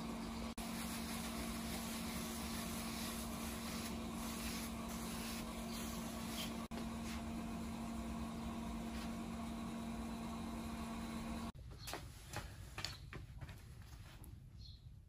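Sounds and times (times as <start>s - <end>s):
machine hum with low tone: 0.0s - 11.6s.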